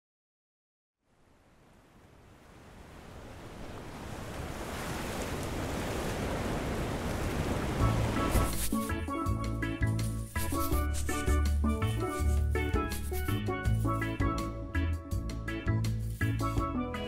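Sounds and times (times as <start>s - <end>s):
ocean surf washing: 1.2s - 9.0s
music: 7.8s - 17.0s.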